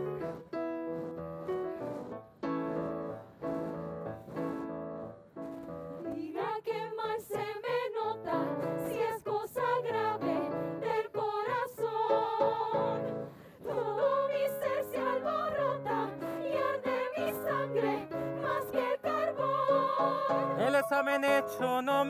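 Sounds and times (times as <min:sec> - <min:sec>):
operatic voices singing: 0:06.1 - 0:22.0
instrumental accompaniment: 0:14.0 - 0:22.0.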